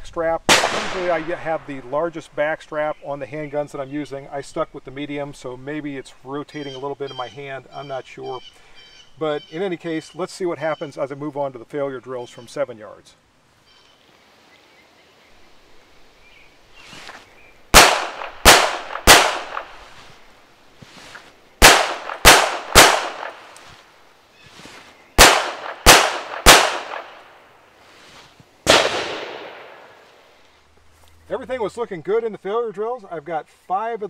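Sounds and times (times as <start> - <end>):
pistol shots with echo: 0.5 - 1.4, 17.7 - 19.9, 21.6 - 23.5, 25.2 - 27.3, 28.7 - 30.0.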